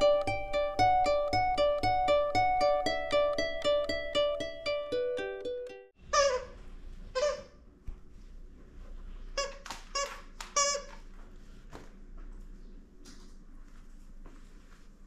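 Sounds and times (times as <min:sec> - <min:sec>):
ukulele music: 0:00.0 - 0:06.0
dog toy squeaking: 0:06.0 - 0:07.6, 0:09.4 - 0:11.0.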